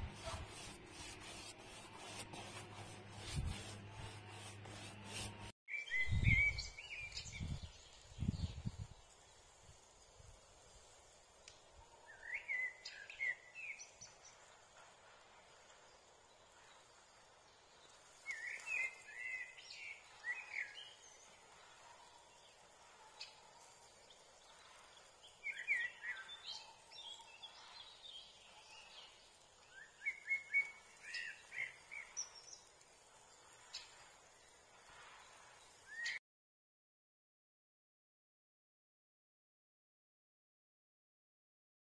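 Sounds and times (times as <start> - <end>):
songbird singing: 5.7 - 9.2, 12.0 - 14.4, 17.7 - 21.3, 24.0 - 34.1
faint steady hiss: 6.6 - 36.2.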